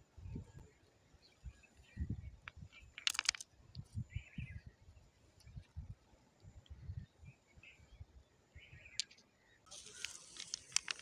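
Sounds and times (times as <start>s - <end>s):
wind on microphone: 0.1s - 0.6s, 1.4s - 2.9s, 3.7s - 7.3s
rattle of sharp clicks: 2.9s - 3.5s, 8.9s - 11.0s.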